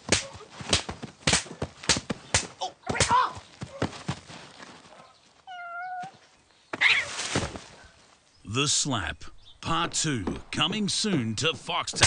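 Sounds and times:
open-hand slaps to a face: 0.1s - 3.2s.

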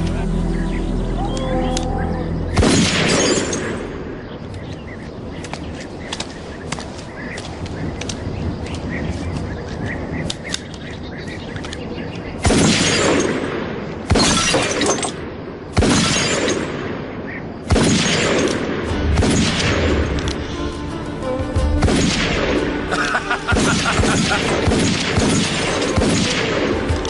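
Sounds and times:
background music: 0.0s - 4.2s, 18.0s - 27.0s.

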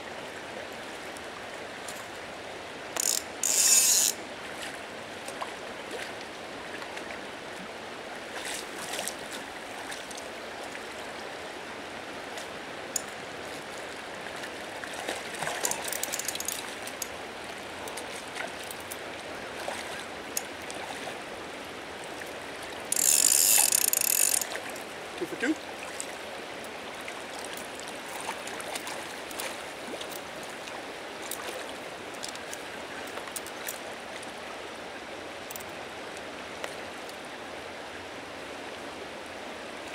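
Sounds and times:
river water rushing: 0.0s - 39.9s
fishing reel drag ratcheting: 3.0s - 4.2s, 15.5s - 17.2s, 22.9s - 24.7s.

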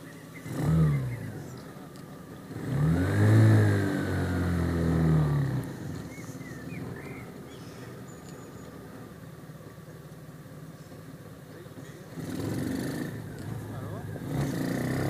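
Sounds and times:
small engine revving: 0.0s - 9.0s, 12.0s - 15.0s.

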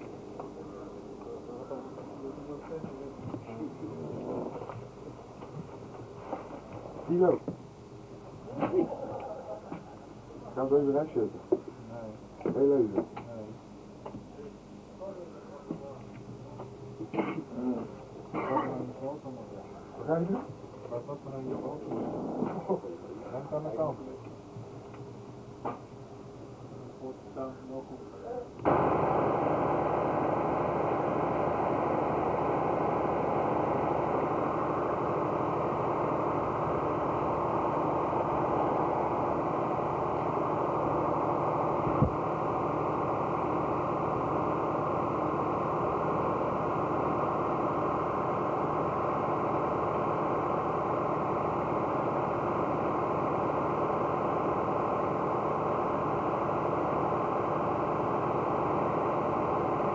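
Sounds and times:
engine idling: 0.0s - 13.4s, 28.6s - 59.9s.

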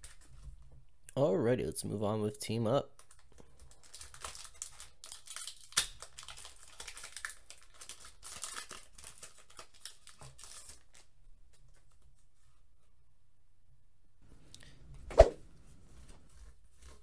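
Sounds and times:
foil wrapper crinkling and tearing: 2.9s - 11.8s.

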